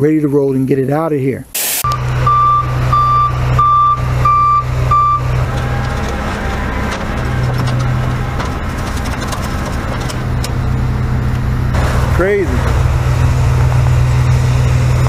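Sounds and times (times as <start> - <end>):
reversing alarm beeping: 1.8 - 5.4
heavy vehicle engine running: 1.8 - 15.0.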